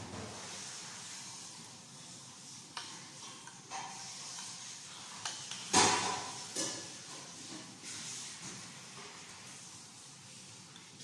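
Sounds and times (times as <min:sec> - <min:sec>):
cutlery scraping and tapping on plate: 0:02.7 - 0:09.6.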